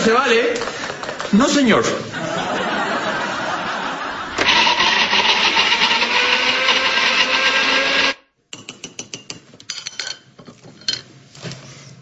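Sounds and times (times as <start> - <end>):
blender motor whine: 4.4 - 8.2.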